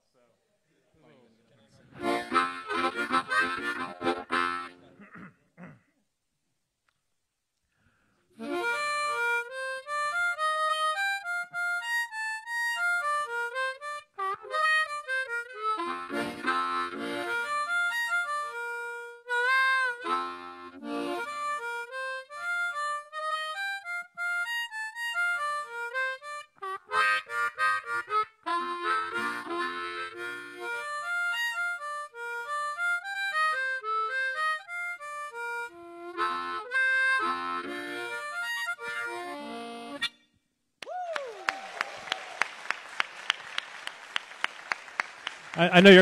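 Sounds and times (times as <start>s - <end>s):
harmonica melody: 1.9s - 5.0s, 8.3s - 40.4s, 45.6s - 46.0s
audience applauding: 40.8s - 46.0s.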